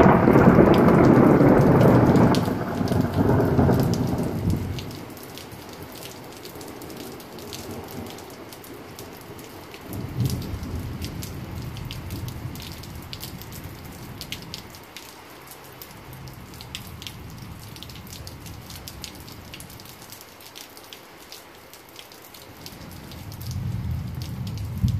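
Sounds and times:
thunder rumbling: 0.0 - 6.0, 9.9 - 14.4, 22.7 - 24.9
raindrops ticking on surfaces: 0.0 - 24.9
steady rain falling: 0.0 - 24.9.

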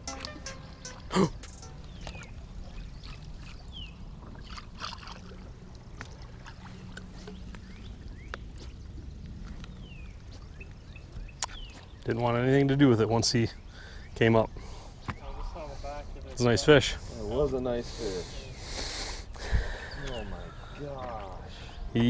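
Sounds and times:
high falling chirps: 0.0 - 2.9
waves lapping against a boat: 1.9 - 12.0.

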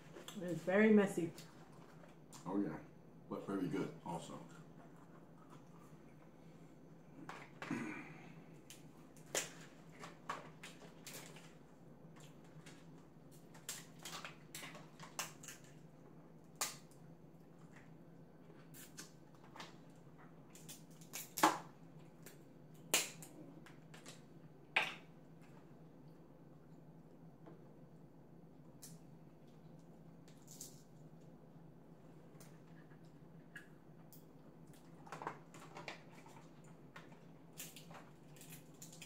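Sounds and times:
crab shells cracking: 13.5 - 15.9, 20.4 - 23.4.

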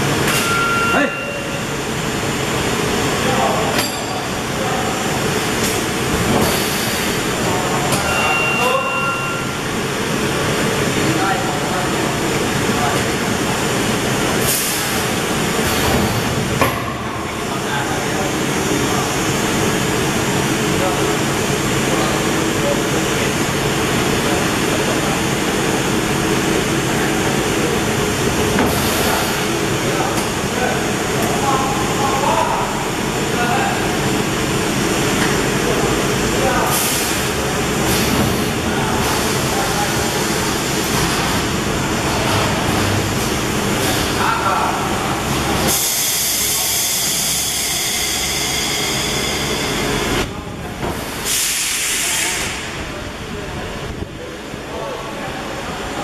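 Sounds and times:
low machinery drone: 0.0 - 56.0
compressed air hissing: 6.4 - 7.3, 51.0 - 52.7.

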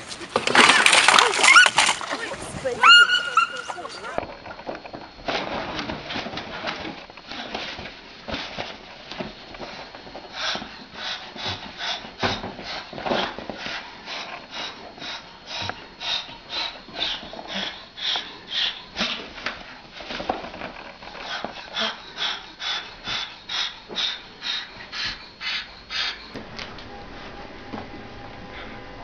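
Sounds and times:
cockatoo hissing: 2.6 - 4.2, 10.3 - 19.8, 21.1 - 26.4.

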